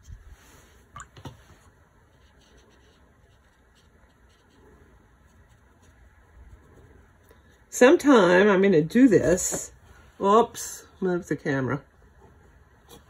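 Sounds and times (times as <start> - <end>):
paintbrush strokes on paper: 0.0 - 7.7.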